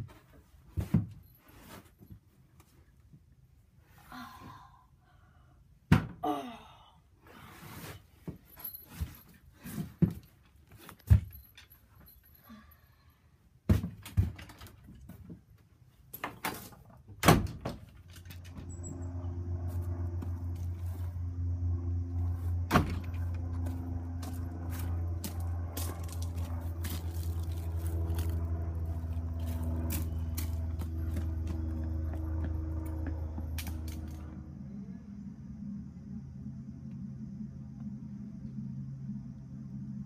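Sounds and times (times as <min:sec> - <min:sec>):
low steady hum: 0:00.0 - 0:13.7, 0:14.3 - 0:40.0
thumps and knocks of bumping things: 0:13.7 - 0:15.4
wooden shed door thudding open: 0:17.2 - 0:17.9.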